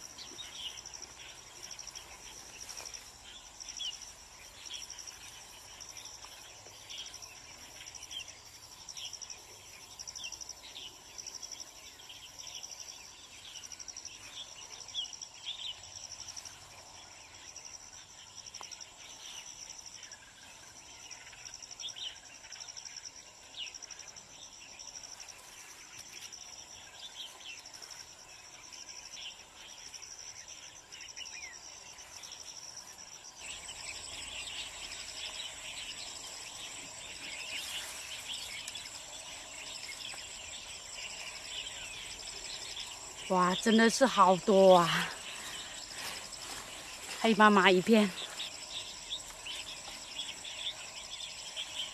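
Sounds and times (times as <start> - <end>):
insects trilling in pulses: 29.0 - 51.9.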